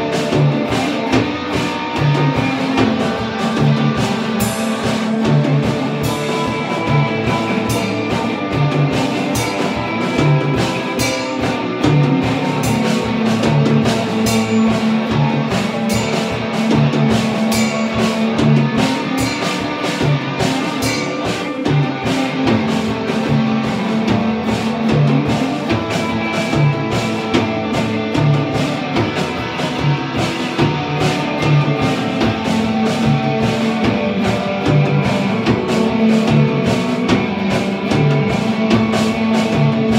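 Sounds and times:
distorted electric guitar riff: 0.0 - 39.9
drum beat: 0.0 - 39.9.

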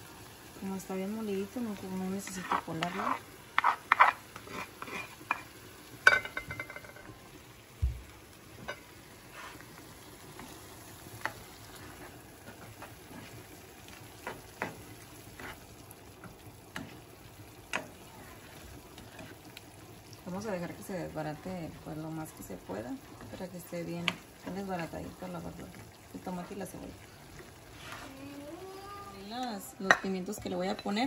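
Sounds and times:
sofrito sizzling in a pan: 0.0 - 31.0
spoon knocking and scraping: 2.2 - 7.1.

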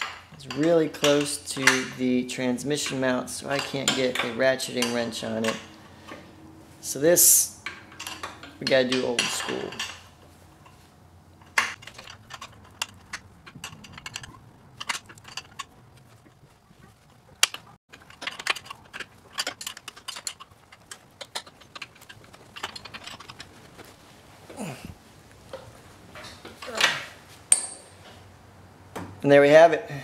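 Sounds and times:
wrench clinking on metal bolt: 0.0 - 2.0, 2.7 - 5.8, 7.6 - 10.8, 11.4 - 15.8, 17.4 - 23.8, 26.6 - 28.0.

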